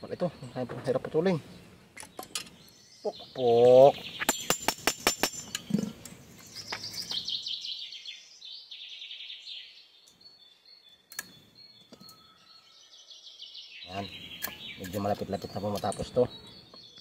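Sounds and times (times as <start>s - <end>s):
birds chirping: 0.0s - 17.0s
sharp knocks: 4.2s - 5.6s.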